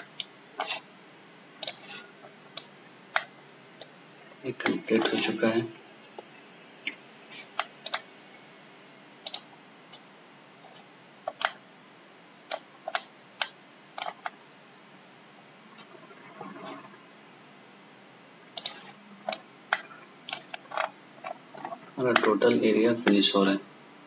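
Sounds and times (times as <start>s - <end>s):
faint steady hiss: 0.0s - 24.0s
computer mouse clicks: 1.6s - 2.0s, 2.6s - 3.9s, 7.6s - 8.1s, 9.1s - 10.0s, 10.7s - 11.6s, 12.5s - 14.4s, 18.6s - 22.4s.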